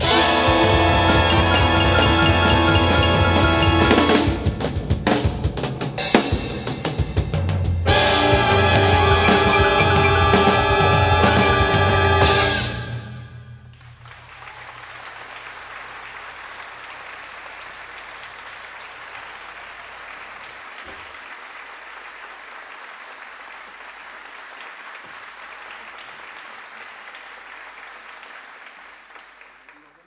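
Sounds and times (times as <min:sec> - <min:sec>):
audience applauding: 0:00.0 - 0:04.5, 0:13.6 - 0:30.0.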